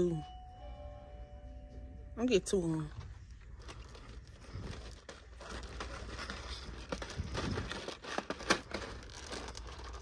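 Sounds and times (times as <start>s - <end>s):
plastic packets crinkling: 3.2s - 10.0s.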